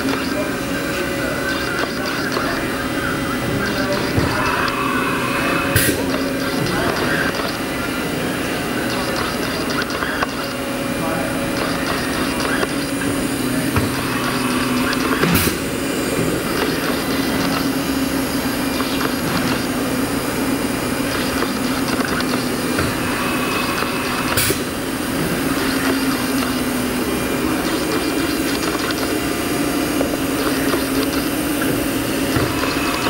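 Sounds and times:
machinery humming: 0.0 - 33.0.

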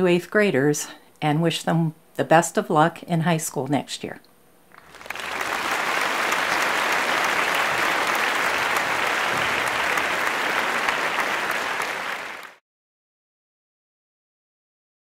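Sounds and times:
audience applauding: 4.7 - 12.6.

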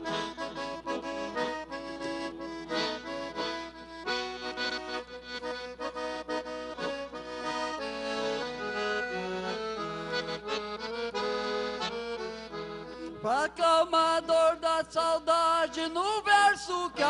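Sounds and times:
lively accordion tune: 0.0 - 17.0.

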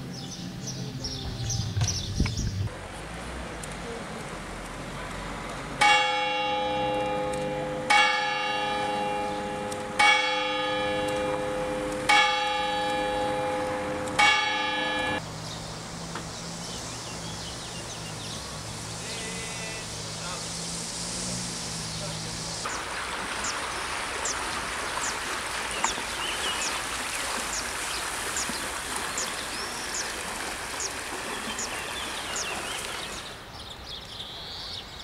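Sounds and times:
church bell ringing: 5.8 - 15.2.

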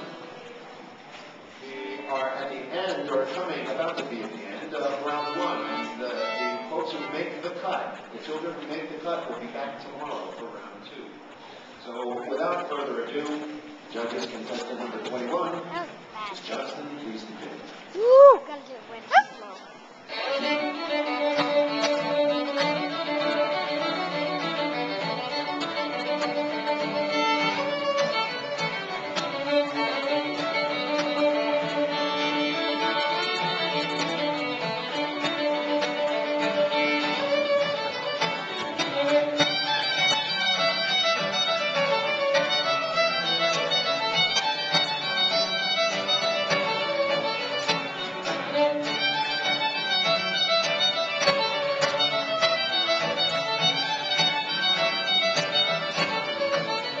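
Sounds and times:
fiddle playing lively notes: 3.2 - 7.7, 20.1 - 57.0
acoustic guitars strumming: 19.4 - 57.0.

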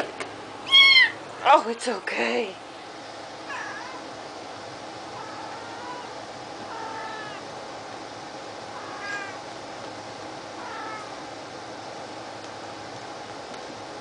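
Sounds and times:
cats meowing: 0.7 - 1.2, 3.5 - 4.0, 5.1 - 7.5, 8.7 - 9.4, 10.6 - 11.2.

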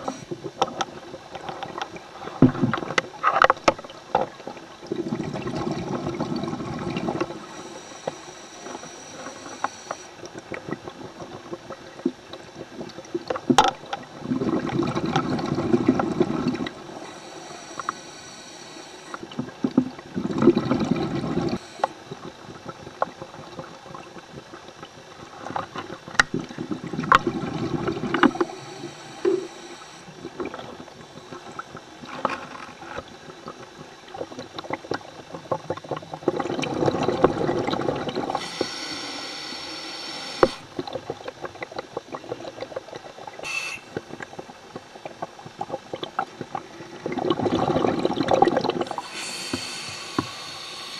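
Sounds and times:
exhaled bubbles gurgling underwater: 0.0 - 50.9
regulator inhale hiss: 7.1 - 10.2, 16.8 - 19.2, 21.4 - 22.0, 28.2 - 30.2, 38.3 - 40.7, 43.4 - 44.0, 48.9 - 50.9.

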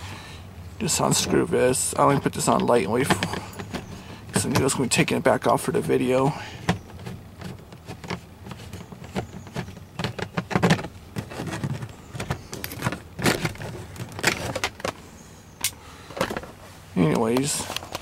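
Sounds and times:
plastic panel clicks and scrapes: 2.1 - 5.1, 6.5 - 15.0.

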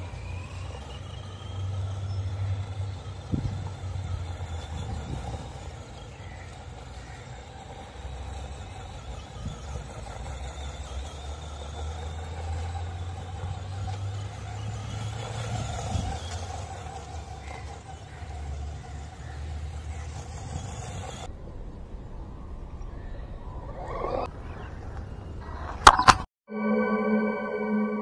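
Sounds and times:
rc car motor and gears whining: 0.0 - 21.3.

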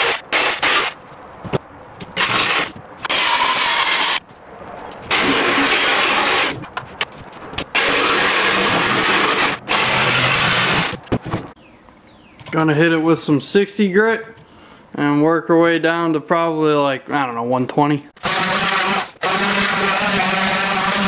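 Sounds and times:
jigsaw cutting plywood: 0.0 - 1.0, 2.2 - 4.2, 5.1 - 6.6, 7.7 - 11.0, 18.2 - 21.0.

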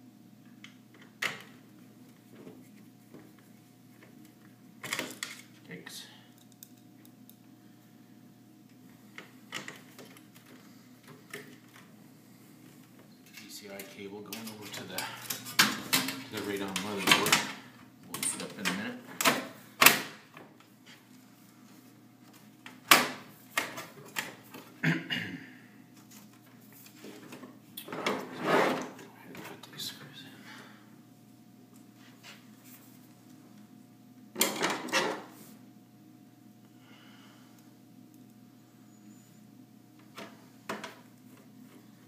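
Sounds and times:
faint steady hum: 0.0 - 42.0.

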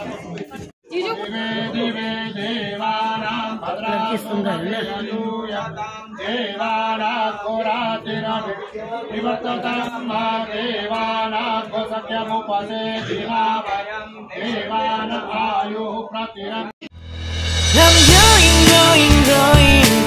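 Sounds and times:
mantras chanted: 1.0 - 16.7.

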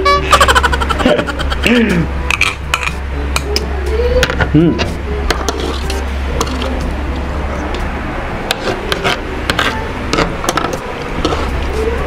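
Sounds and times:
cutlery scraping a plate: 8.5 - 11.7.

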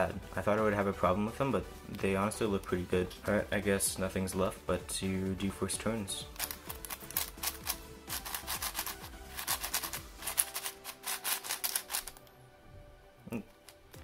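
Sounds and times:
soft background music: 0.0 - 14.0
plastic puzzle cube clicking: 6.4 - 12.2.

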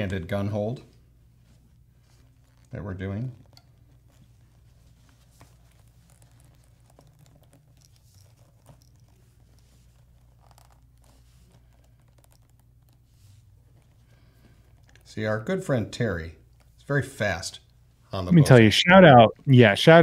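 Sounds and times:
low steady hum: 0.0 - 20.0
soft plastic clicks and rustles: 2.0 - 15.1.

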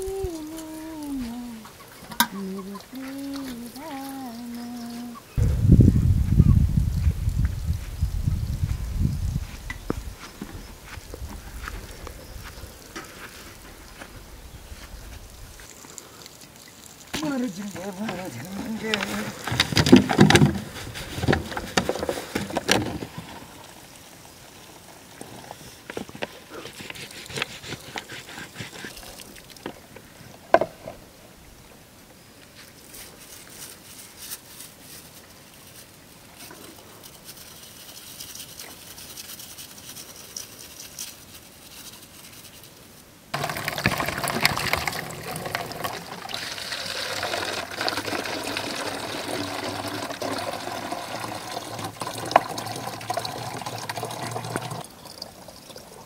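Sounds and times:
water pouring and splashing: 14.8 - 30.9, 43.3 - 56.0.

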